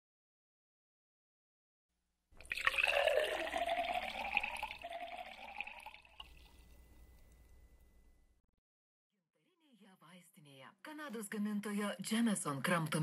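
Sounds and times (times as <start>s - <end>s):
tea pouring into porcelain cup: 2.4s - 6.8s.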